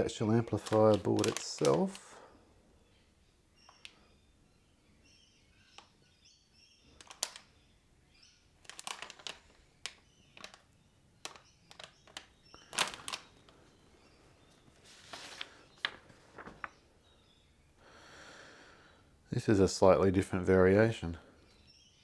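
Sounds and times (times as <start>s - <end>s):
plastic bag crinkling: 0.1s - 2.2s, 6.9s - 7.5s, 8.6s - 13.8s, 14.4s - 16.8s.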